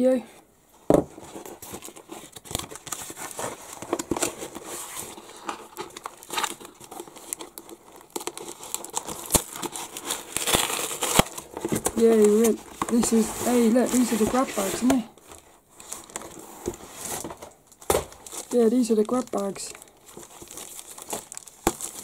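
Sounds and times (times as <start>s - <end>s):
packing tape and cardboard tearing: 1.2s - 22.0s.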